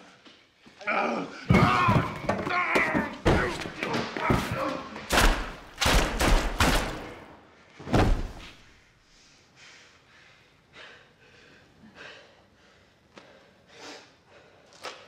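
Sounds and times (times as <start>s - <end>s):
heavy thuds: 7.8s - 8.7s
person breathing: 8.4s - 15.0s.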